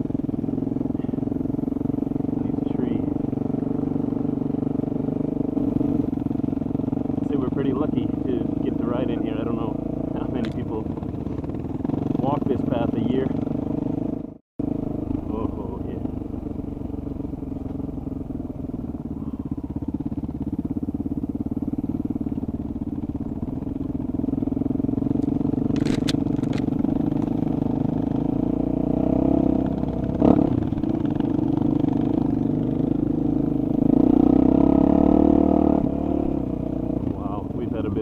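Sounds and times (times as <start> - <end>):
motorcycle engine running: 0.0 - 38.0
sharp clicks: 25.2 - 27.3.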